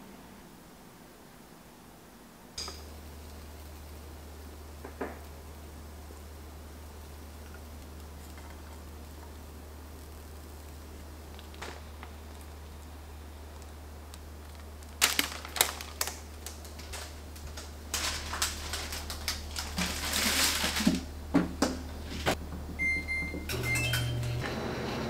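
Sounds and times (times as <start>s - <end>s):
oven humming: 2.5s - 25.0s
control panel beeping: 22.8s - 24.4s.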